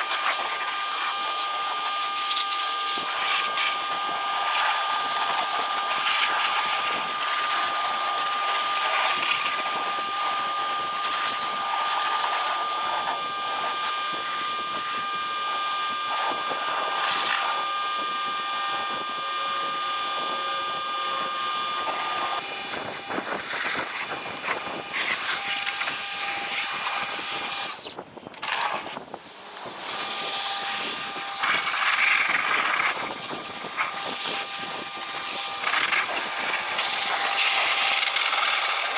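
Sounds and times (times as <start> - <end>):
water jet spraying: 0.0 - 19.1, 29.8 - 38.9
pressure washer motor whine: 0.0 - 38.9.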